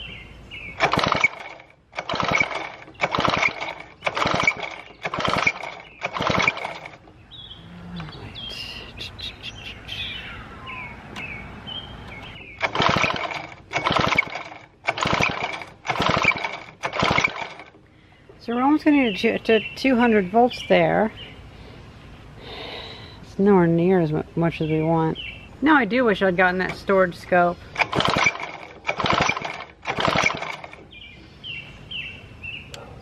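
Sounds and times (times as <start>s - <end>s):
birds chirping: 0.0s - 33.0s
chainsaw pull-starter cranking: 0.8s - 7.0s, 12.6s - 17.8s, 27.7s - 30.9s.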